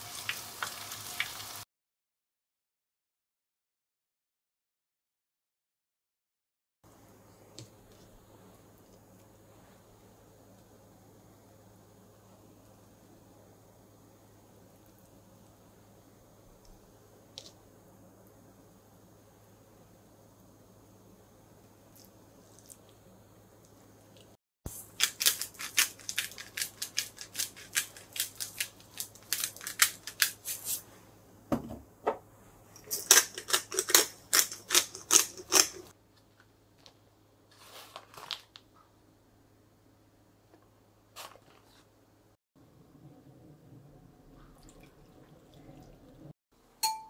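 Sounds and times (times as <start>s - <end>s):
knock: 31.5s - 32.2s.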